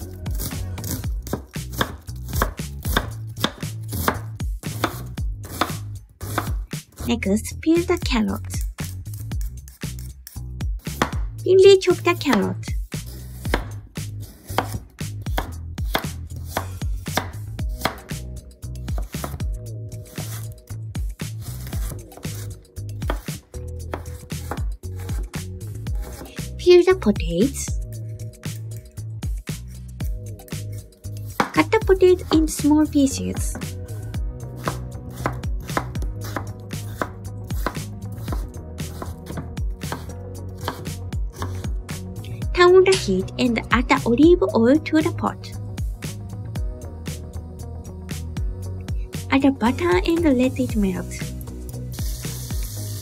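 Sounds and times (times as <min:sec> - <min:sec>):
knife chopping on cutting board: 0:00.4 - 0:07.1, 0:09.9 - 0:11.3, 0:12.2 - 0:18.2, 0:18.8 - 0:19.4, 0:20.1 - 0:20.5, 0:21.4 - 0:25.3, 0:26.0 - 0:26.4, 0:31.2 - 0:32.4, 0:34.6 - 0:41.7.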